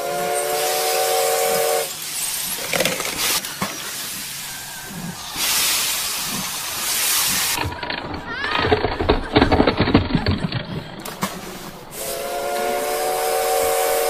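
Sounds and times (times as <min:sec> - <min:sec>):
steam train whistle: 0:00.0 - 0:02.2, 0:11.9 - 0:14.0
steam hissing: 0:00.0 - 0:08.0, 0:11.1 - 0:14.0.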